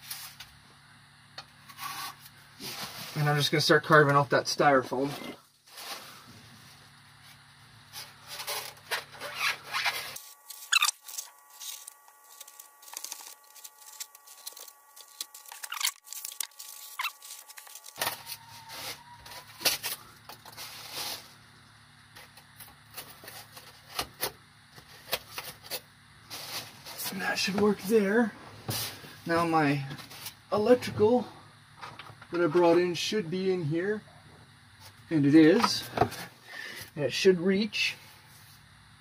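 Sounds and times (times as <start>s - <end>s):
knife scraping styrofoam: 1.7s - 3.4s, 7.8s - 21.4s, 22.2s - 27.3s.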